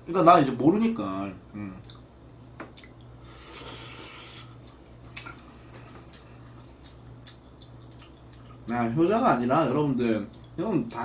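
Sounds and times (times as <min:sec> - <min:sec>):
low electrical hum: 0:00.0 - 0:11.0
wet chewing: 0:02.7 - 0:08.7, 0:10.2 - 0:10.6
person slurping noodles: 0:03.2 - 0:04.6.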